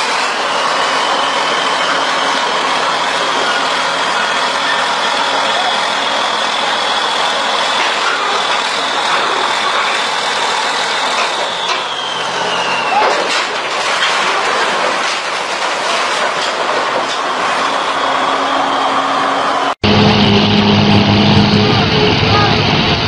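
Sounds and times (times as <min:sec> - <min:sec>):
high squeal sliding down: 0:00.0 - 0:13.4
bulldozer engine: 0:00.0 - 0:23.0
steel tracks clanking: 0:00.0 - 0:23.0.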